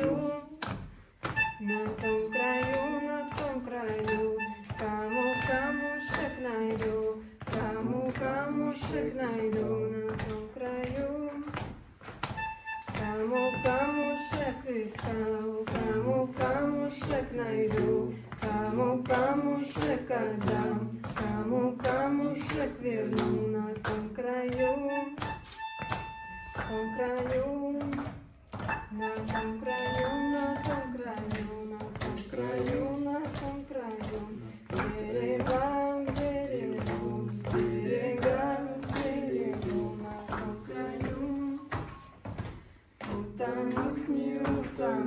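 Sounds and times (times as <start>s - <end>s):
woman singing slow song: 0.0s - 0.7s, 1.5s - 11.6s, 12.9s - 25.3s, 26.5s - 28.2s, 28.8s - 42.0s, 43.0s - 45.0s
hands clapping: 0.0s - 45.0s
melodica steady notes: 1.2s - 3.4s, 4.0s - 6.7s, 12.3s - 14.6s, 24.6s - 27.2s, 28.7s - 31.0s.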